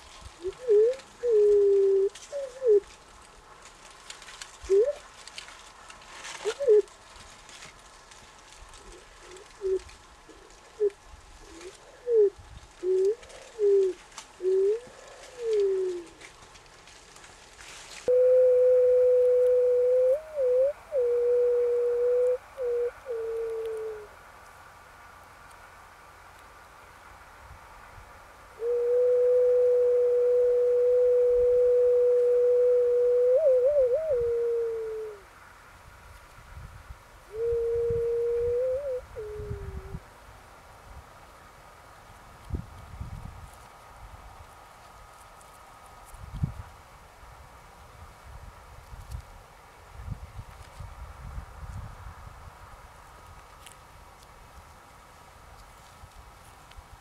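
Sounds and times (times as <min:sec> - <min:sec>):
bird cooing: 0:00.4 - 0:02.9, 0:04.6 - 0:05.0, 0:06.4 - 0:06.9, 0:08.9 - 0:16.2, 0:18.1 - 0:24.2, 0:28.6 - 0:35.2, 0:37.3 - 0:40.0
pure sine tone: 0:18.1 - 0:24.1, 0:28.6 - 0:35.2.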